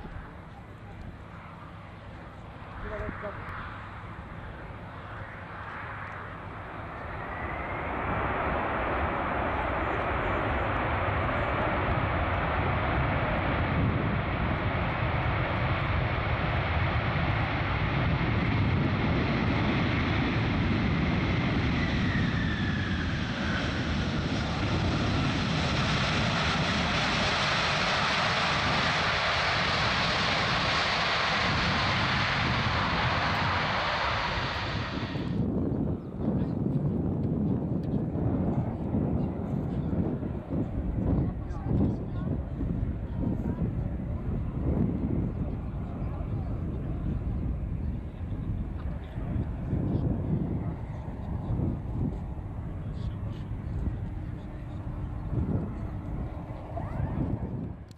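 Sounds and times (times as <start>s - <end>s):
jet engine roar: 0.0s - 57.9s.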